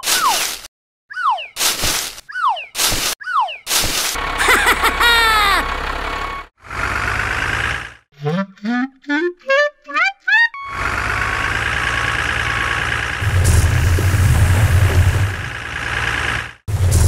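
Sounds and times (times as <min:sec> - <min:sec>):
cartoon engine running sound: 0:04.2 - 0:17.0.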